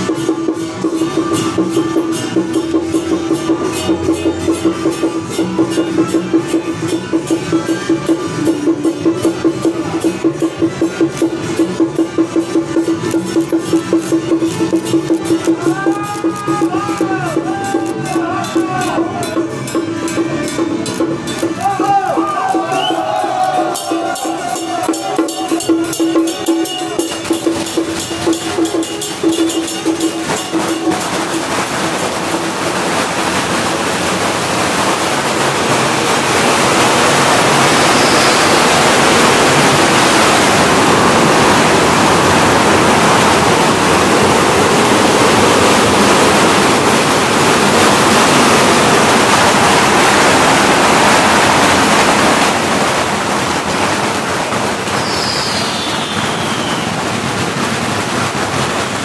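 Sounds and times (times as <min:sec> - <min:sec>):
held note: 0:00.0 - 0:32.7
firecrackers crackling: 0:00.0 - 0:59.0
procession percussion: 0:00.0 - 0:59.0.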